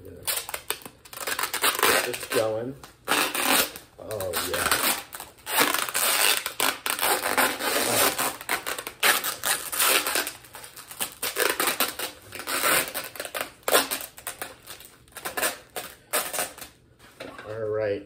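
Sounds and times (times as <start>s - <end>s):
packing tape being wound: 0.0s - 16.8s
crinkly packaging rustling: 4.0s - 17.2s.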